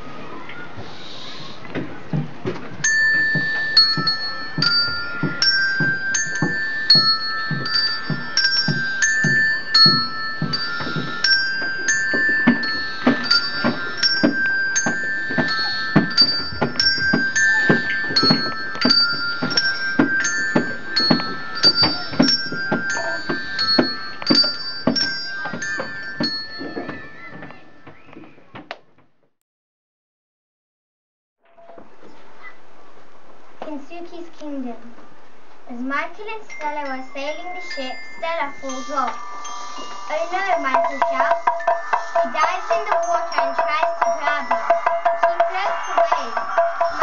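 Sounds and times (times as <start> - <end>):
gamelan music on mallet percussion: 2.8 - 27.8, 36.5 - 47.0.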